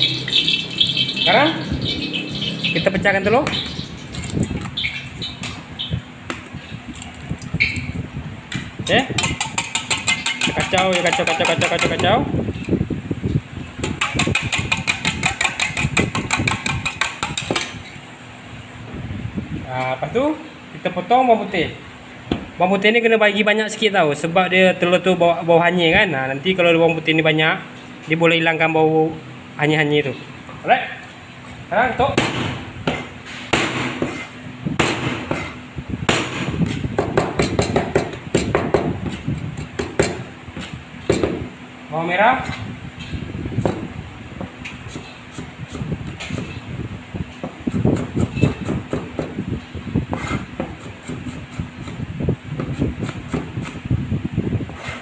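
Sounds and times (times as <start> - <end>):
fork beating eggs in metal pan: 8.9 - 12.2, 13.8 - 17.9
cleaver chopping on wooden board: 9.2 - 12.2, 13.8 - 17.8, 32.2 - 41.5, 47.4 - 49.4, 52.6 - 53.8.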